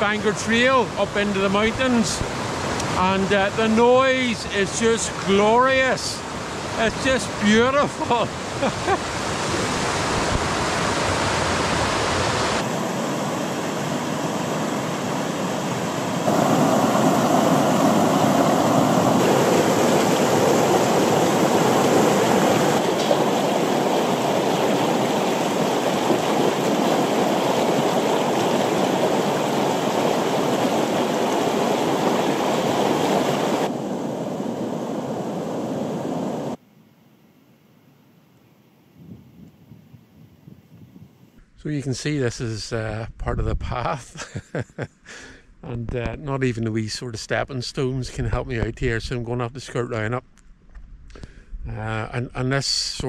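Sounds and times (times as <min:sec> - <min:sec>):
water rushing over rocks: 0:00.0 - 0:36.5.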